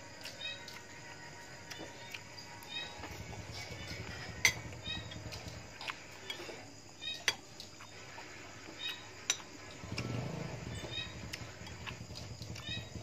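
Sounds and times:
metal spoon clinking on plates: 0:03.9 - 0:05.4, 0:09.2 - 0:09.8.

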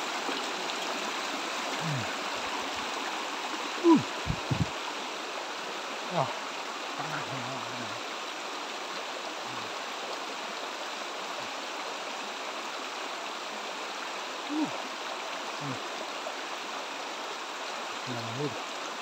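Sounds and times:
stream rushing over stones: 0:00.0 - 0:19.0
low voice sounds: 0:01.7 - 0:02.2, 0:03.8 - 0:04.7, 0:06.0 - 0:06.4, 0:07.0 - 0:08.0, 0:09.4 - 0:09.7, 0:14.5 - 0:14.8, 0:15.6 - 0:15.9, 0:18.0 - 0:18.6.

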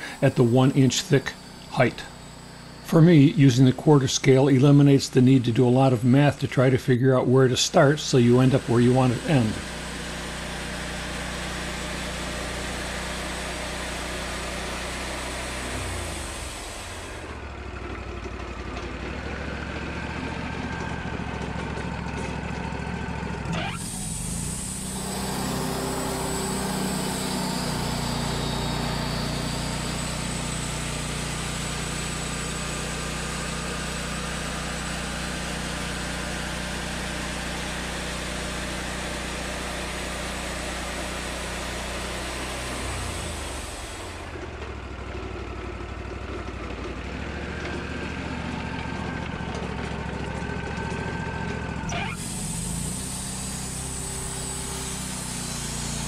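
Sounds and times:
saw blade cutting wood hiss: 0:00.0 - 0:06.7, 0:07.6 - 0:17.3, 0:23.6 - 0:44.3, 0:51.9 - 0:56.0
sawmill engine running: 0:00.0 - 0:56.0.

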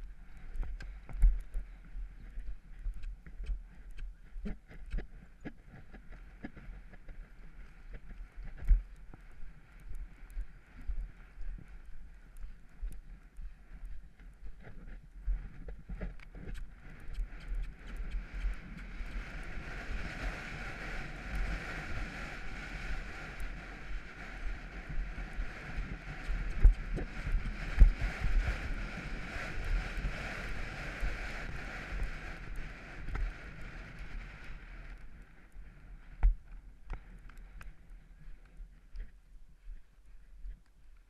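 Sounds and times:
horse hoofbeats thudding: 0:00.6 - 0:11.8, 0:12.9 - 0:22.2, 0:22.8 - 0:34.0
wind rushing over microphone: 0:12.8 - 0:39.1.

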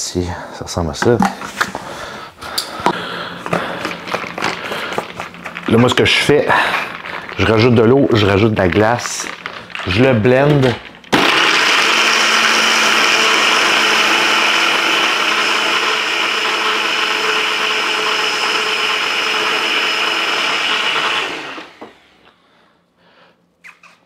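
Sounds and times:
blender crushing ice: 0:03.5 - 0:22.1.

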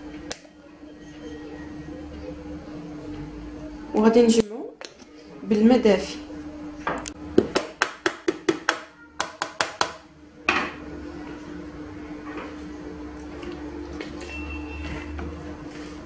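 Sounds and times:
kitchen containers knocking: 0:07.4 - 0:10.0.

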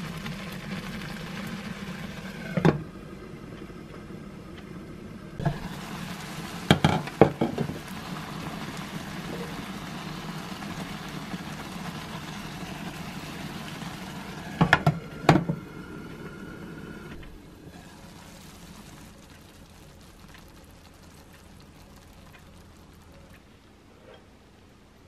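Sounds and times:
sauce simmering and bubbling: 0:00.0 - 0:24.6
faint hiss: 0:05.4 - 0:25.0.

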